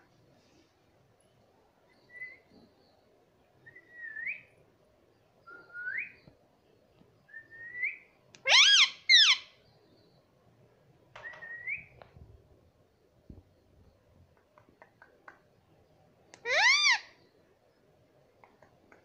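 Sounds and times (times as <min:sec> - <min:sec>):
shrill parrot calls: 0:08.4 - 0:09.5, 0:16.4 - 0:17.2.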